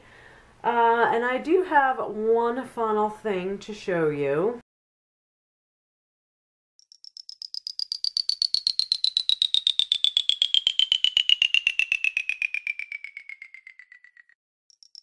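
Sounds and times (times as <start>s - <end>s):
rapid pulsed tone gliding down: 8.3s - 14.3s.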